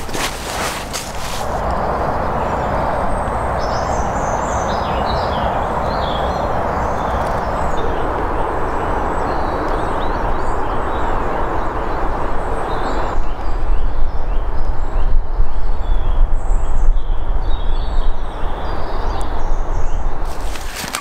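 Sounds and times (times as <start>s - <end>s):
small birds chirping: 0.0s - 2.8s, 17.0s - 21.0s.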